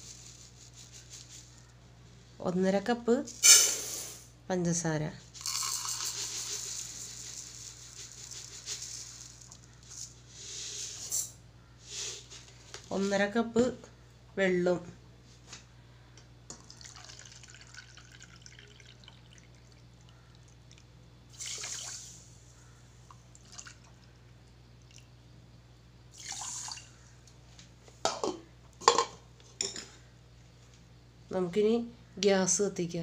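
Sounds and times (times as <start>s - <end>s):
water splashing into a cup: 16.6s - 20.0s, 20.7s - 22.1s, 23.4s - 24.0s, 26.2s - 26.9s.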